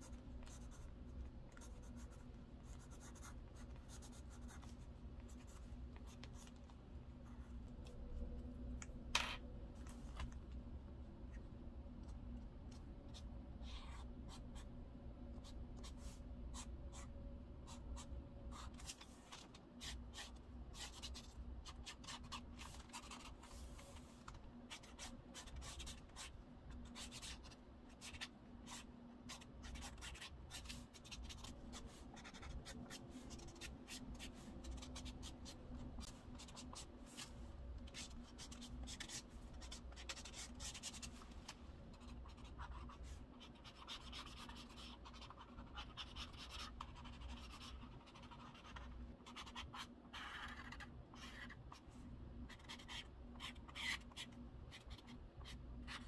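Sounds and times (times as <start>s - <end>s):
pen scratching on paper: 1.6s - 6.5s, 17.7s - 24.1s, 24.7s - 37.3s, 37.9s - 41.2s, 42.0s - 51.8s, 52.5s - 56.0s.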